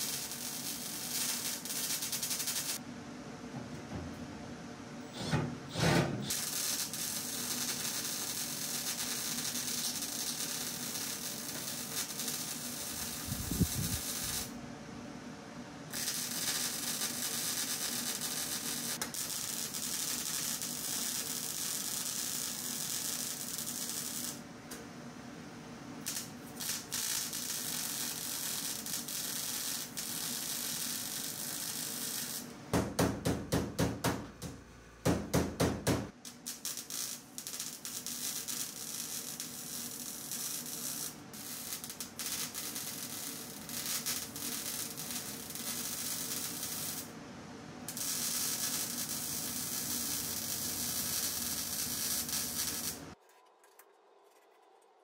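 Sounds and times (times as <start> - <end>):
welder hissing: 0.0 - 2.8, 5.1 - 14.6, 15.9 - 24.4, 26.0 - 32.5, 36.3 - 47.2, 47.9 - 53.2.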